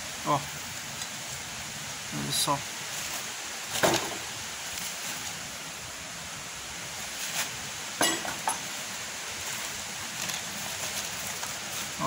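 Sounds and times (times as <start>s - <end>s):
running water: 0.0s - 12.0s
plastic litter rustling and clicking: 3.0s - 5.3s, 9.4s - 12.0s.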